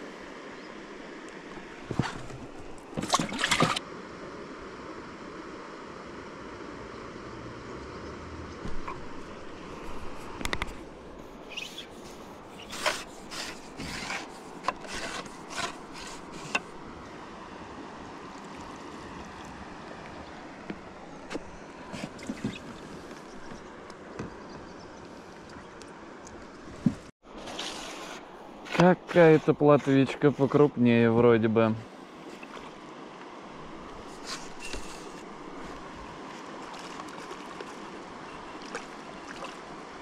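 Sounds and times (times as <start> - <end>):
steady outdoor hiss: 0.0 - 40.0.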